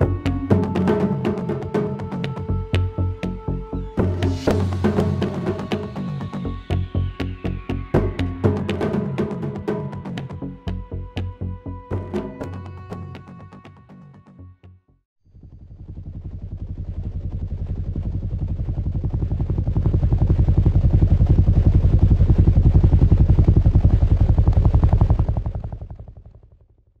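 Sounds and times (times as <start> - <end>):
helicopter rotor chopping: 15.3 - 26.6.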